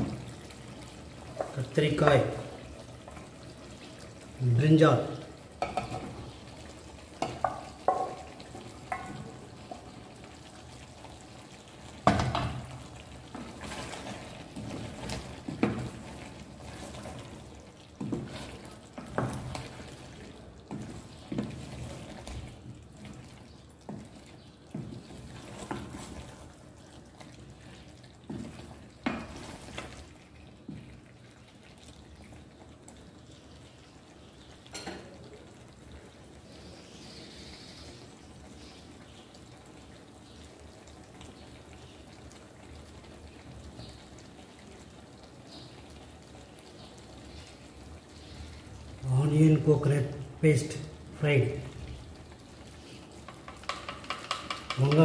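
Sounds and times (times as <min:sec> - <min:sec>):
food stirred in pan: 0:00.0 - 0:55.0
frying sizzle: 0:00.0 - 0:55.0
spoon knocking against pan: 0:07.2 - 0:08.3, 0:08.9 - 0:09.2, 0:53.2 - 0:55.0.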